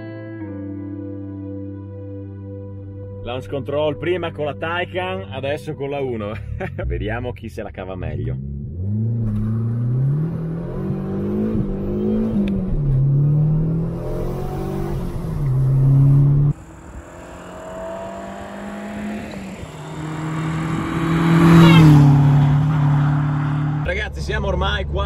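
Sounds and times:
car approaching: 6.1 - 25.0
car engine accelerating: 6.3 - 25.0.

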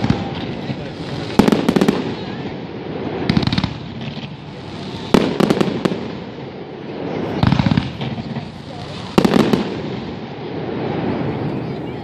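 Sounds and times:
fireworks bursting with bangs and crackles: 0.0 - 12.0.

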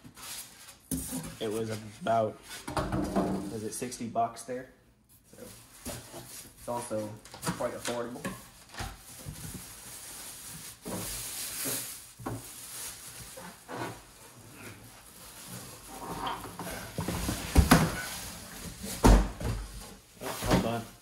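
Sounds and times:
plastic wrap crinkling: 5.3 - 17.0.

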